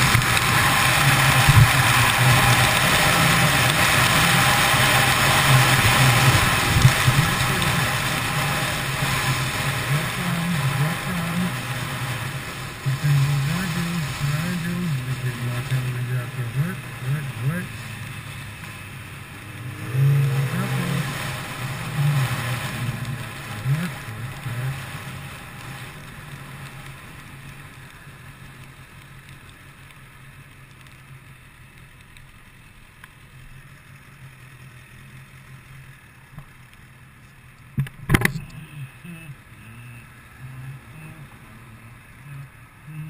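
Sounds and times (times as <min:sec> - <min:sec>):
wind noise on microphone: 0:00.0 - 0:10.3
motorcycle engine running: 0:00.0 - 0:31.2.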